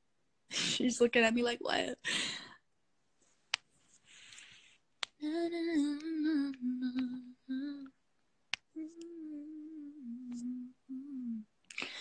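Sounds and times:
woman humming: 0:05.2 - 0:07.9, 0:08.8 - 0:12.0.

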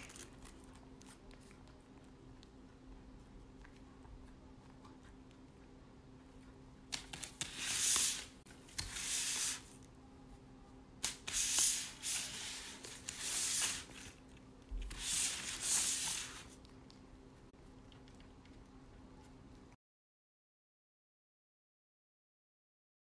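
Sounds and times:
foil wrapper rustling and crackling: 0:00.0 - 0:01.2.

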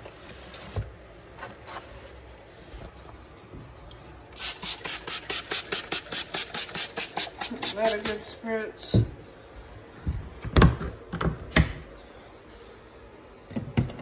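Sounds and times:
spray bottle hissing sprays: 0:04.4 - 0:08.2.

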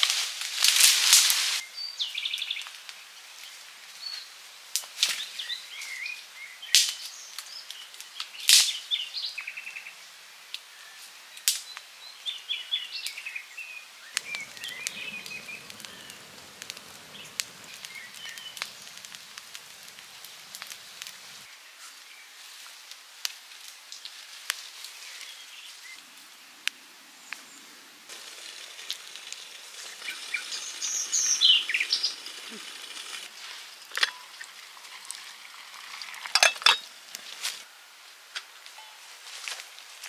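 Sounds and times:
birds chirping and trilling: 0:14.1 - 0:21.5, 0:29.7 - 0:33.3.

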